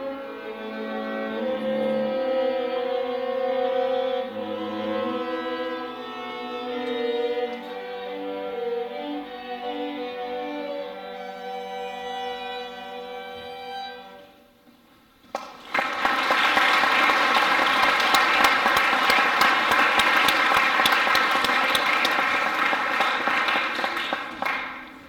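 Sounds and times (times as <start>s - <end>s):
audience clapping: 15.2s - 25.0s.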